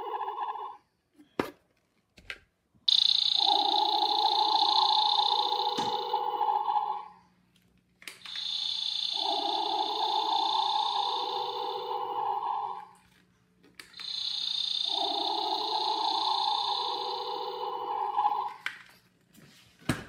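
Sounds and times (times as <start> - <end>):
toy gun electronic sound effect: 2.9 - 7.1, 8.2 - 13.0, 13.8 - 18.7.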